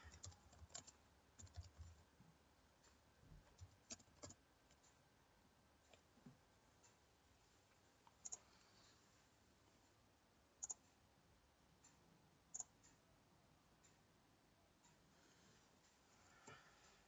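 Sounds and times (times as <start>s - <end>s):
computer mouse clicks: 0.0s - 2.0s, 3.5s - 4.9s, 8.0s - 8.5s, 10.6s - 10.8s, 12.5s - 13.0s.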